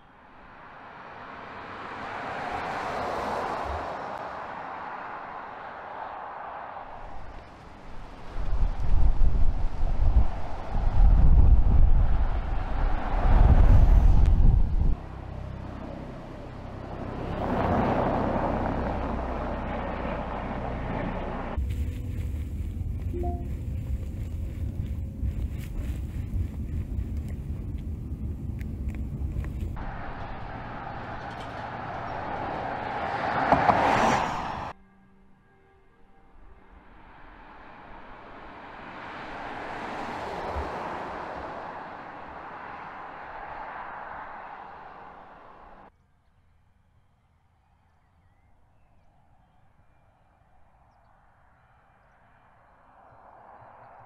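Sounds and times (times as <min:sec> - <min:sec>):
car tyre and road noise: 0:00.0 - 0:34.8, 0:36.3 - 0:46.0, 0:47.4 - 0:54.0.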